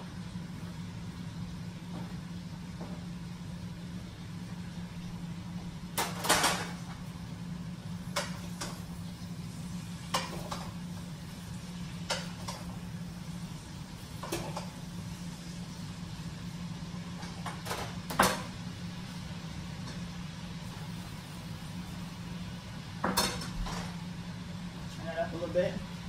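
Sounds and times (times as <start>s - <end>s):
steady low hum: 0.0s - 26.0s
pots and pans knocking and clinking: 6.0s - 6.8s, 14.2s - 14.7s, 23.0s - 23.9s.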